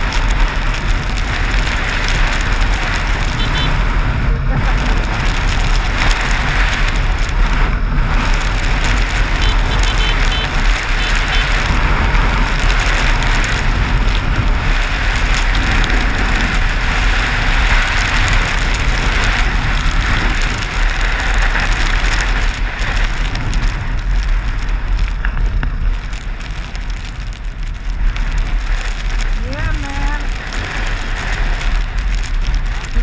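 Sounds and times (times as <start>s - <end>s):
wind buffeting microphone: 0.0s - 33.0s.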